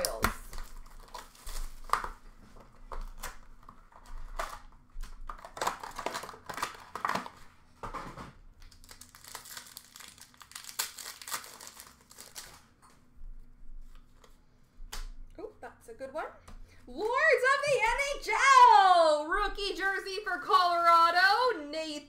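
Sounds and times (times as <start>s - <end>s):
card wrappers crinkling and tearing: 0.0s - 7.6s, 8.6s - 12.8s.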